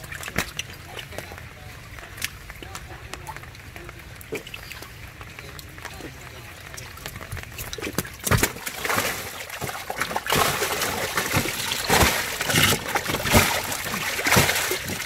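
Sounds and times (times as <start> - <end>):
fish splashing in tank: 6.0 - 15.0.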